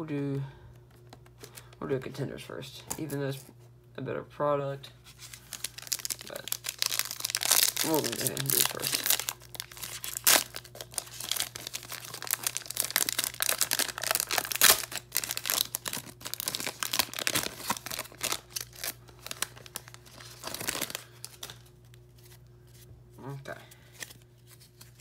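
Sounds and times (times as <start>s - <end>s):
wrapper tearing and crinkling: 5.1s - 21.7s.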